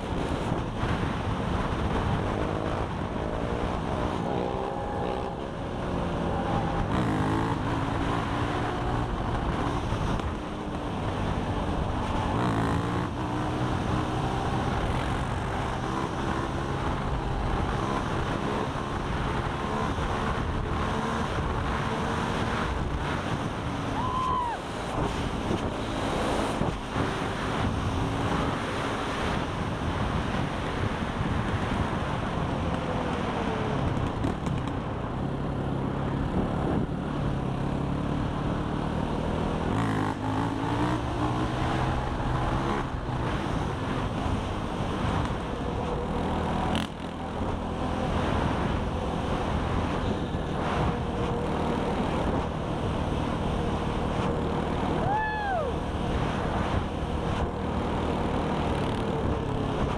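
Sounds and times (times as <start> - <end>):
quad bike engine revving: 0.0 - 23.8, 35.7 - 55.0.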